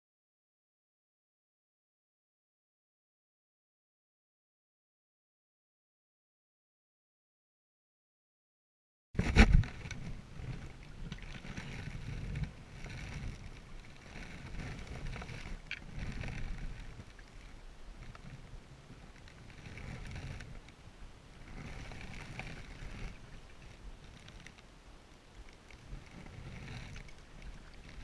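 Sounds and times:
paddle strokes splashing water: 9.2 - 28.0.

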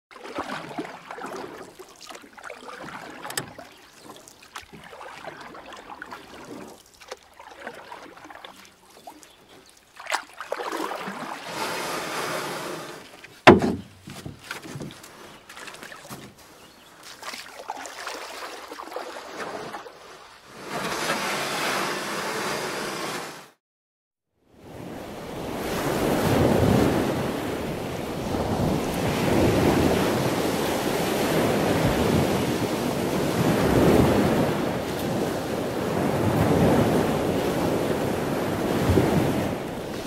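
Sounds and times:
water lapping against quay: 0.1 - 23.2, 24.6 - 40.0
loud thump: 13.5 - 14.4.

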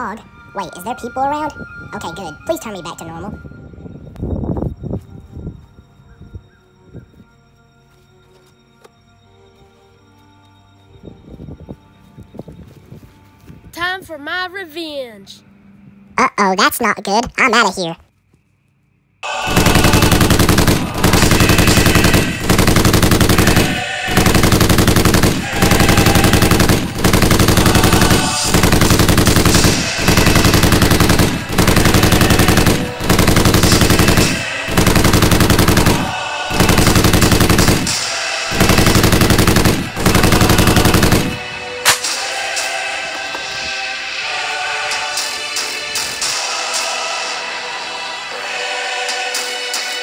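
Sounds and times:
machine-gun fire bursts: 19.3 - 42.0.

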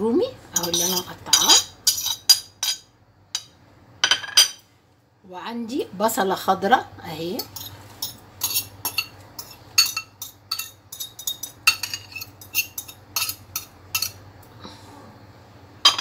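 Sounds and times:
fork clinking against ceramic bowl: 7.4 - 14.2.

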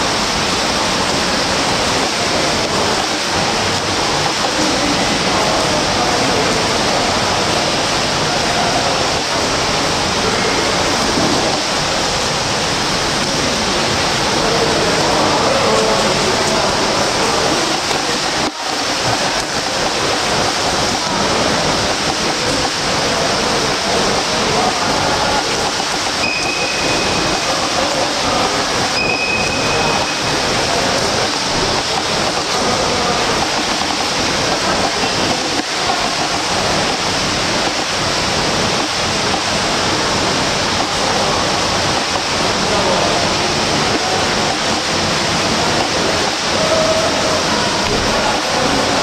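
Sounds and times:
swimmers splashing water: 8.1 - 49.0
short high tones: 26.2 - 27.5, 28.9 - 30.4.

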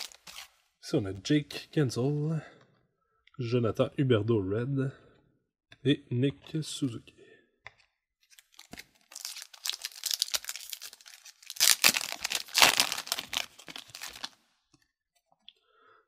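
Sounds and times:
foil wrapper tearing and crinkling: 0.0 - 0.5, 8.3 - 14.4.

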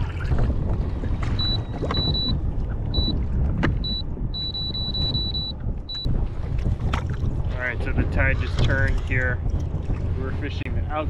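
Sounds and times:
wind rumble on microphone: 0.0 - 11.0
high electronic beeps: 1.4 - 2.4, 3.0 - 3.2, 3.8 - 6.1.

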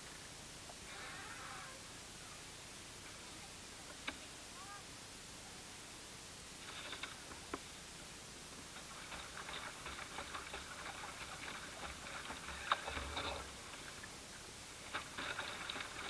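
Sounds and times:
ripples lapping against boat hull: 8.6 - 14.2, 14.8 - 16.0.

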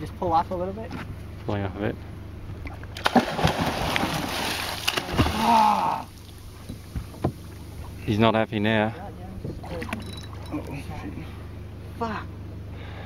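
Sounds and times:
light water: 2.5 - 11.4
heavy water splashing: 3.0 - 8.0
short shout: 5.3 - 6.1.

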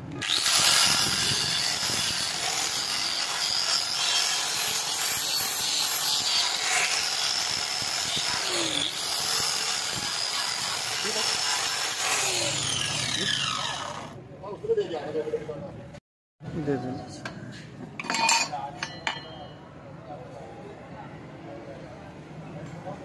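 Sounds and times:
angle grinder grinding steel: 0.1 - 14.2.

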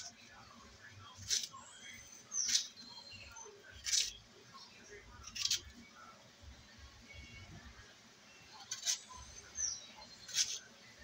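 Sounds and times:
knife scraping plantain peel: 1.2 - 2.8, 3.7 - 4.2, 5.2 - 5.7, 8.6 - 11.0.

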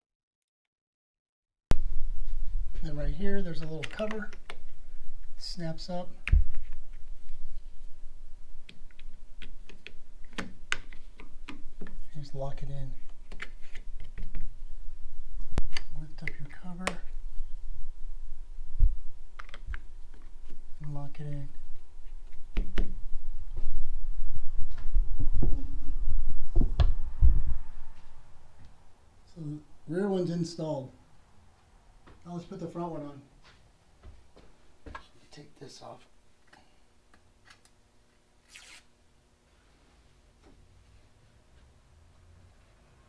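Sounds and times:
microphone handling rumble: 22.6 - 28.3.

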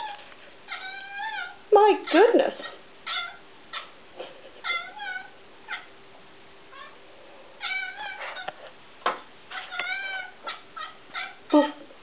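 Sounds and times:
cat chirping and meowing: 0.0 - 3.9, 4.6 - 5.9, 6.7 - 7.0, 7.6 - 8.6, 9.5 - 11.6.

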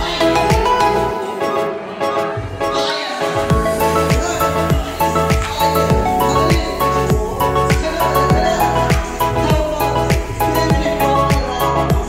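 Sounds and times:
music with kick-drum beat: 0.0 - 0.8, 3.5 - 12.0.

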